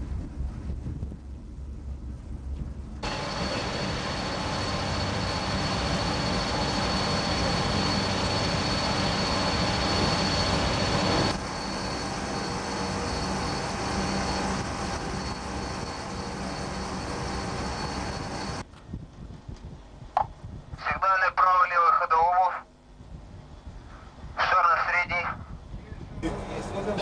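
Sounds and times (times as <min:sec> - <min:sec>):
machinery rushing hum: 0:00.0 - 0:18.7, 0:26.1 - 0:27.0
faint high whine: 0:03.0 - 0:19.0.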